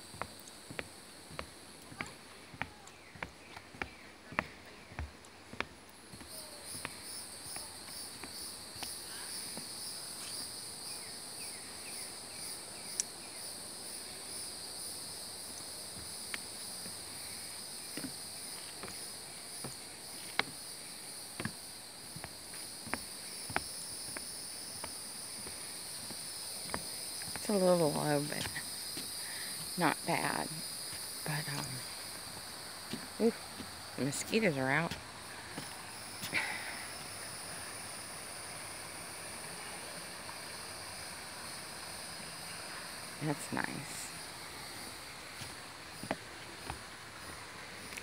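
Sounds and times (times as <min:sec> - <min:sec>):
footsteps on wooden boardwalk: 0:00.0 - 0:10.5, 0:15.0 - 0:37.2, 0:44.6 - 0:48.0
insects trilling: 0:00.0 - 0:48.0.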